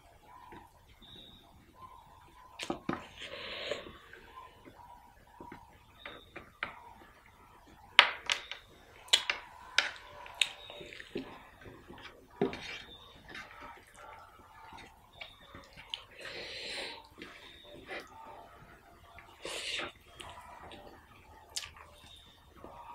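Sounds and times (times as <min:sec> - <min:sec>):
mouth smacking and chewing: 0:09.0 - 0:18.2, 0:19.1 - 0:22.7.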